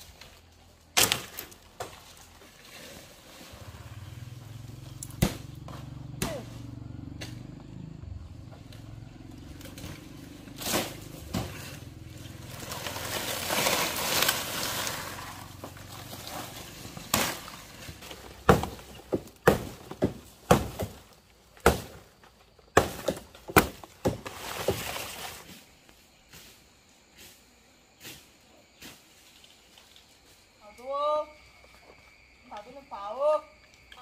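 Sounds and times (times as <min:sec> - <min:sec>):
sharp knocks and strikes: 0:05.2 - 0:05.5, 0:18.4 - 0:21.0
scraping rustling noise: 0:10.8 - 0:18.1, 0:24.2 - 0:26.7.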